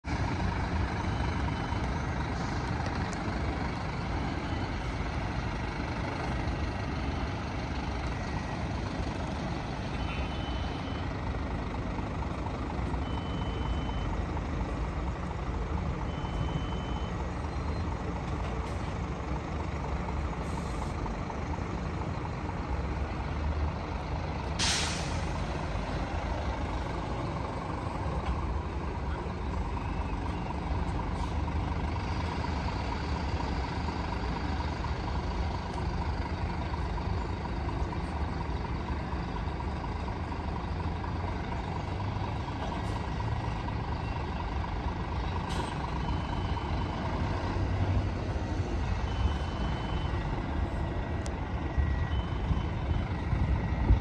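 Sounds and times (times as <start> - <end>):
diesel coach engine running: 0.0 - 54.0
short high beeps: 13.0 - 14.1, 16.1 - 17.2
air brake hiss: 24.6 - 25.5.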